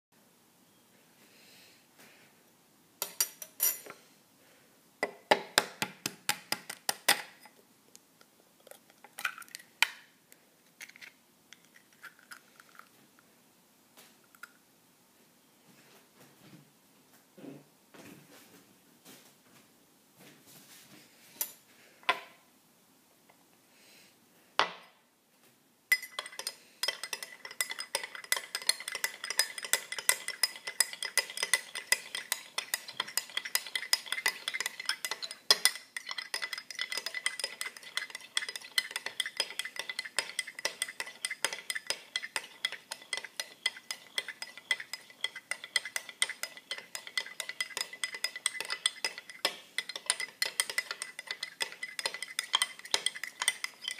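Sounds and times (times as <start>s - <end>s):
utensil clinking in glass: 25.9s - 53.9s.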